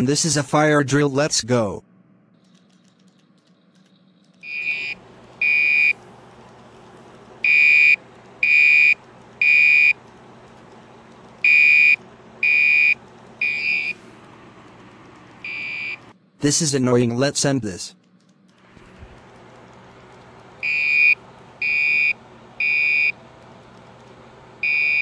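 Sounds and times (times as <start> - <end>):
steady low hum: 0.0 - 25.0
fire alarm high-pitched blasts: 4.4 - 6.0, 7.4 - 10.0, 11.4 - 14.0, 15.4 - 16.0, 20.6 - 23.2, 24.6 - 25.0.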